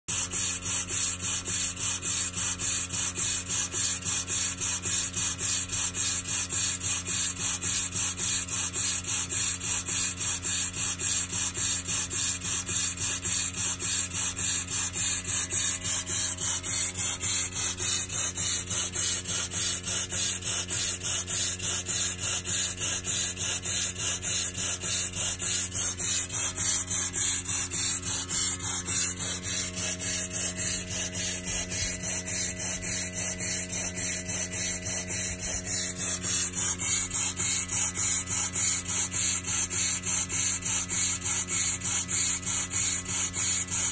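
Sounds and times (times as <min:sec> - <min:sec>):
steam engine exhaust puffing: 0:00.1 - 0:43.9
steady low hum: 0:12.0 - 0:40.6.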